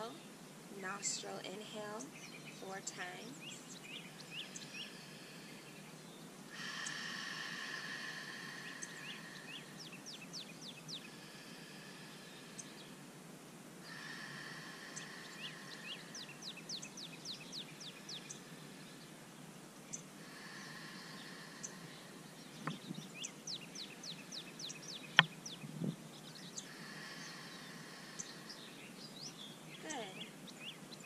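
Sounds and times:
small birds chirping: 0:00.0 - 0:13.1, 0:13.8 - 0:31.0
person breathing out: 0:06.5 - 0:09.9, 0:13.9 - 0:16.5, 0:20.2 - 0:22.7, 0:26.7 - 0:28.7.

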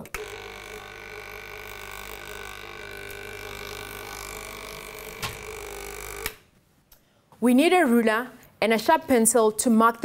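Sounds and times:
ticker timer buzzing: 0:00.0 - 0:06.4.

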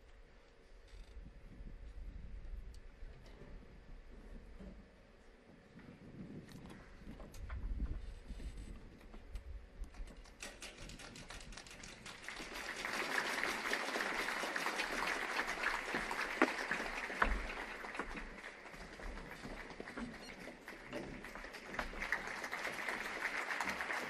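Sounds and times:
audience applause: 0:10.9 - 0:24.0.

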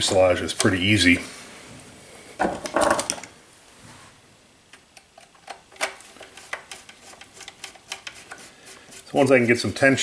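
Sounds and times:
plastic parts knocking: 0:02.4 - 0:03.3
screwdriver clicking on plastic: 0:05.0 - 0:08.4.

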